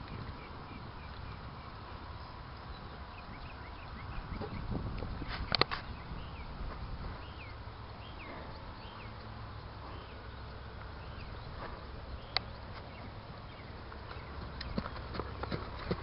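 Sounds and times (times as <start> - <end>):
wind rumble on microphone: 0.0 - 16.0
horse hoofbeats on gravel: 12.8 - 16.0.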